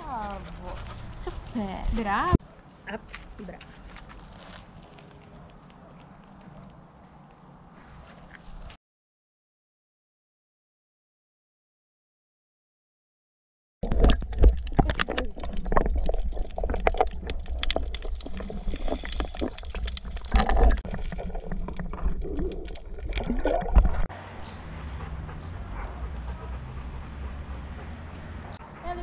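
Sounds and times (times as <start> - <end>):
water splashing and gurgling: 13.8 - 24.8.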